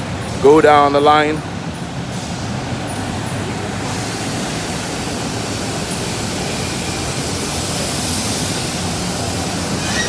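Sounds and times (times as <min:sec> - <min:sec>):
factory machinery rushing noise: 0:00.0 - 0:10.0.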